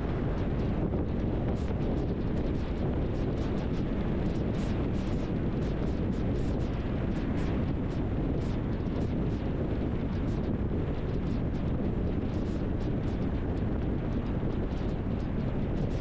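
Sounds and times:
wind buffeting microphone: 0.0 - 16.0.

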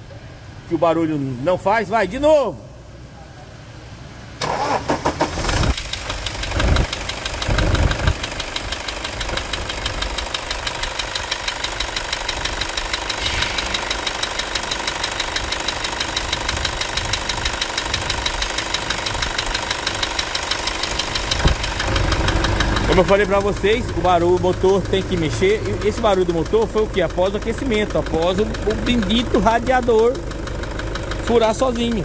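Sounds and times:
diesel engine idling with clatter: 2.9 - 32.0
accessory belt running over pulleys: 6.0 - 32.0.

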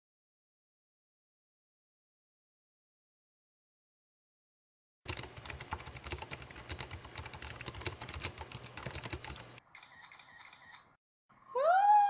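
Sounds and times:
rapid irregular clicking: 5.1 - 9.6.

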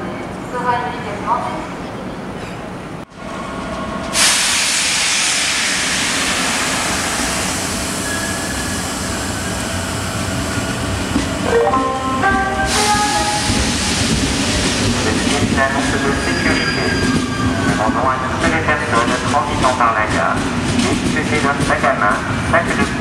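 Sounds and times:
locomotive whining tones: 7.8 - 18.0.

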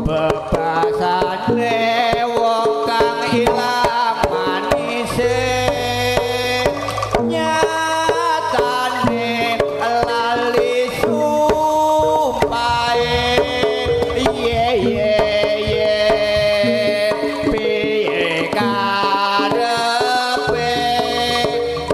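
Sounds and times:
hand drum strokes: 0.0 - 21.9
melody of long held notes: 5.2 - 7.8.

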